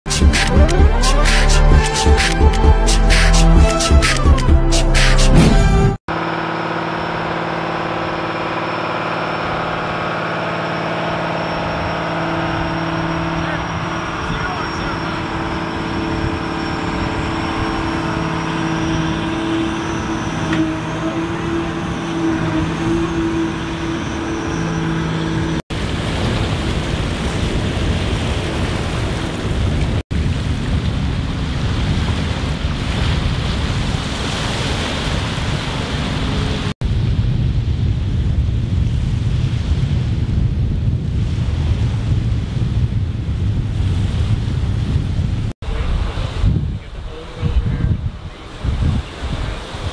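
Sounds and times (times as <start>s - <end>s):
low engine rumble: 0.1s - 27.0s, 45.3s - 49.9s
vehicle engine humming: 0.1s - 27.0s
rushing water: 6.1s - 36.8s, 45.6s - 49.9s
wind: 6.1s - 49.9s.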